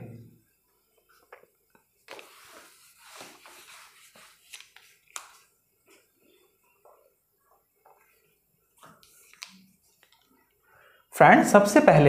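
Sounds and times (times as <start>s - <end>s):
clothing rustling against microphone: 0.5s - 10.6s.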